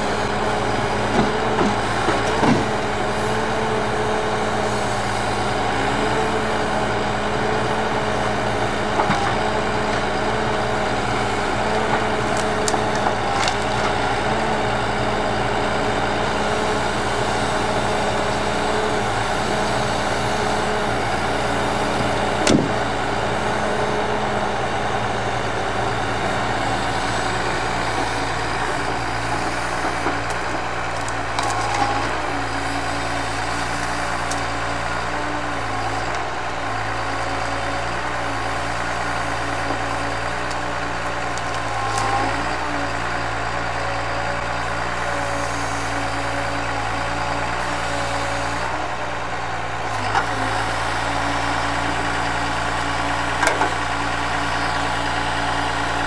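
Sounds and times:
diesel engine running: 0.0 - 56.0
hydraulic whining: 0.0 - 56.0.

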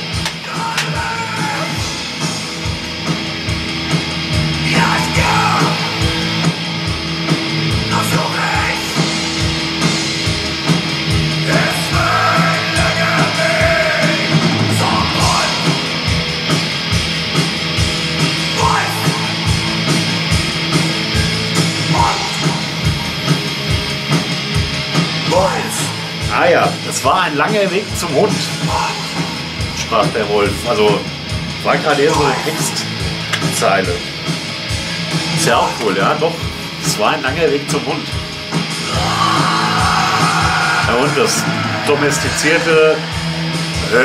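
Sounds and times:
distorted guitars: 0.0 - 44.0
driving drums: 0.0 - 44.0
shouted vocals: 0.4 - 2.0, 4.6 - 6.0, 11.4 - 15.8, 18.5 - 19.6, 21.8 - 22.6, 31.9 - 32.9, 38.8 - 44.0.

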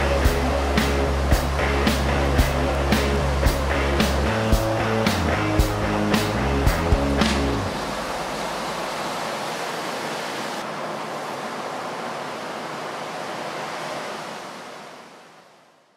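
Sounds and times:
music track: 0.0 - 8.6
ocean waves breaking: 0.0 - 15.9.

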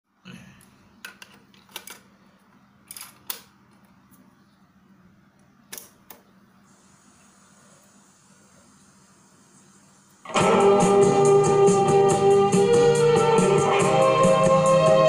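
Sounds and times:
tape hiss: 3.8 - 15.0.

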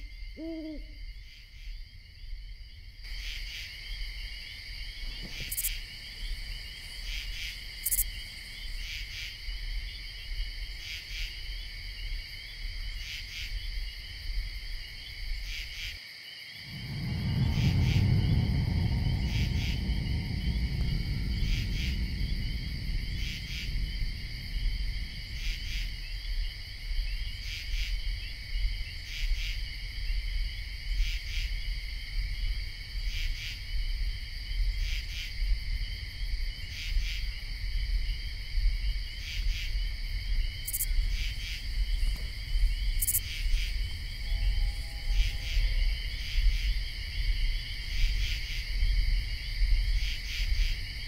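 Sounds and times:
crickets chirping: 0.0 - 51.0
low steady rumble: 16.7 - 51.0.

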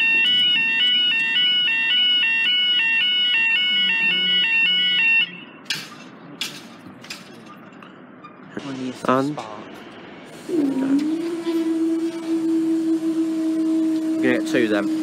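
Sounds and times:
level crossing alarm wailing: 0.0 - 5.6, 10.4 - 15.0.

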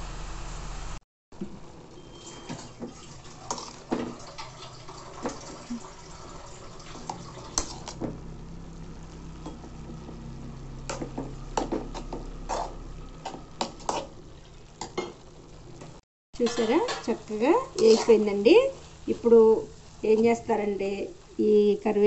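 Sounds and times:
metal spoon scraping pan: 2.1 - 4.5, 7.0 - 8.0, 10.9 - 14.2, 16.4 - 18.4
greens hissing in hot pan: 16.7 - 22.0.

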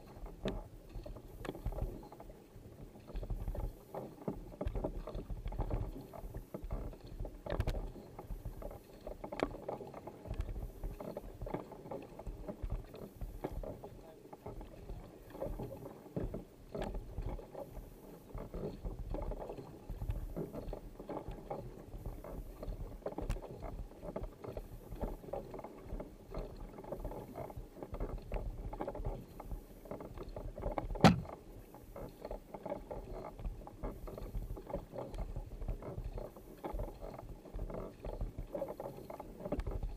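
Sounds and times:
paddle splashing through water: 0.0 - 39.9
sharp knock: 31.0 - 31.3.

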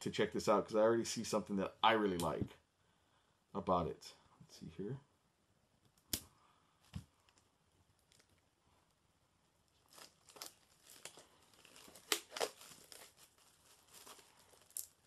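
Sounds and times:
plastic wrap crinkling: 6.8 - 8.5, 9.6 - 15.0.

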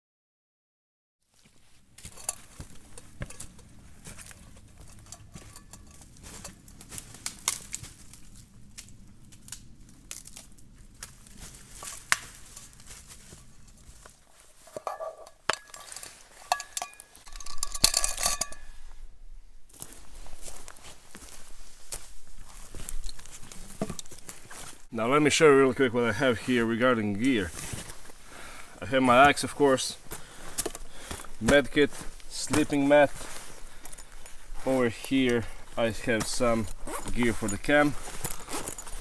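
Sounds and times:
metal mug clinking: 4.8 - 6.6, 14.8 - 18.8
twigs crackling and snapping: 5.4 - 14.2.

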